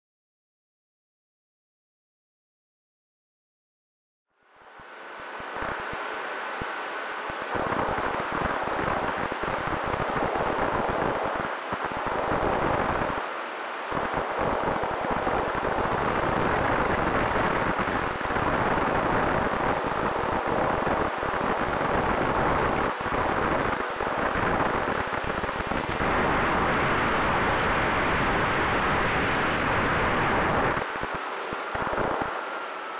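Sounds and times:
faint steady hum: 0:04.3 - 0:32.9
wind rushing over microphone: 0:05.5 - 0:13.3, 0:13.9 - 0:32.6.

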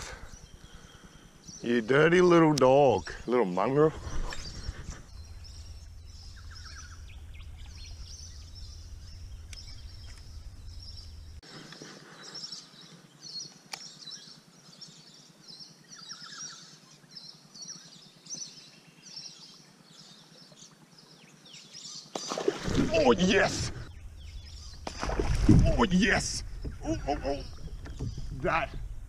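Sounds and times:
steady low rumble: 0:00.0 - 0:11.4, 0:22.7 - 0:29.0
wild birds chirping: 0:00.0 - 0:29.0
low bird trills: 0:03.9 - 0:11.4, 0:22.2 - 0:29.0.

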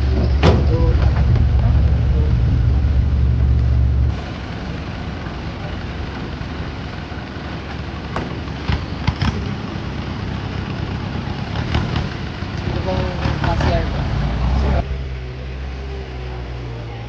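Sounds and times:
sharp knocks: 0:00.0 - 0:03.8
jeep engine rumbling: 0:00.0 - 0:17.0
outdoor hubbub: 0:00.0 - 0:17.0.

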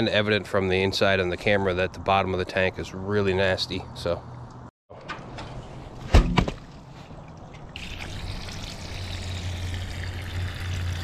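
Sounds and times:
water trickling from a leak: 0:07.3 - 0:11.0.

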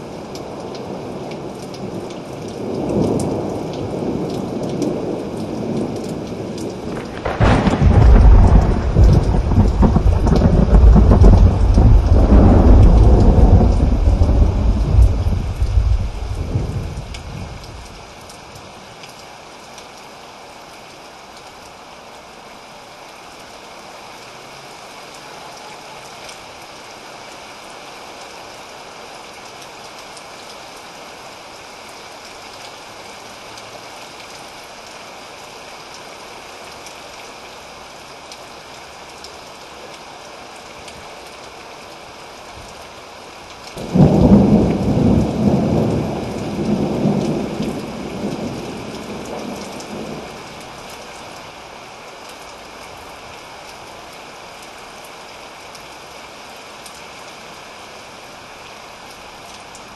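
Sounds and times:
heavy rain falling: 0:00.0 - 0:59.9
thunder clap rumbling: 0:06.8 - 0:18.0, 0:43.8 - 0:50.2.

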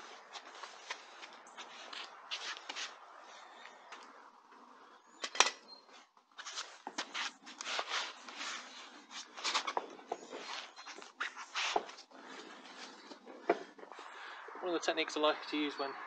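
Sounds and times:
scuffs and rustles: 0:00.0 - 0:03.7, 0:05.9 - 0:14.2.

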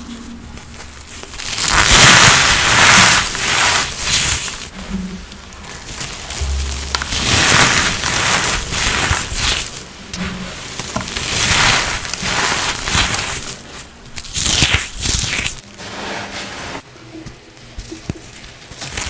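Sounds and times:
small crackles: 0:00.0 - 0:15.6, 0:17.3 - 0:19.0
powder being crushed: 0:00.6 - 0:04.7, 0:05.6 - 0:09.9, 0:10.6 - 0:15.6.

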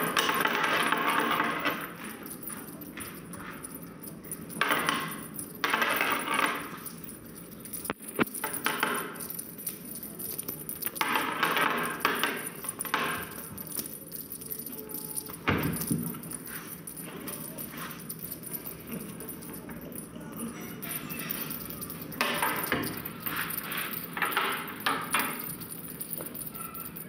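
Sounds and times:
feather toy rustling and scraping: 0:12.5 - 0:19.6, 0:20.8 - 0:26.5.

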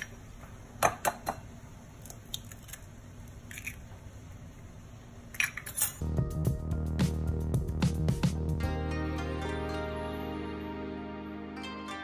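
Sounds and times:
background music: 0:06.0 - 0:12.0.

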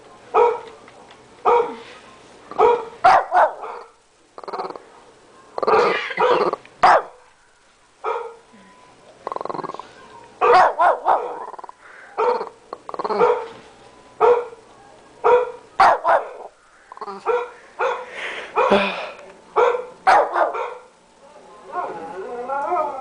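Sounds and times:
small dog barking: 0:00.3 - 0:00.7, 0:01.4 - 0:01.8, 0:02.5 - 0:04.0, 0:05.6 - 0:07.2, 0:08.0 - 0:08.4, 0:10.4 - 0:13.6, 0:14.2 - 0:14.6, 0:15.2 - 0:16.5, 0:17.2 - 0:18.8, 0:19.6 - 0:20.9.

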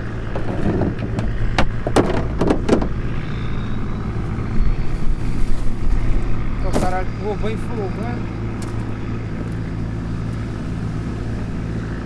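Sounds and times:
low motor hum: 0:00.0 - 0:12.0.

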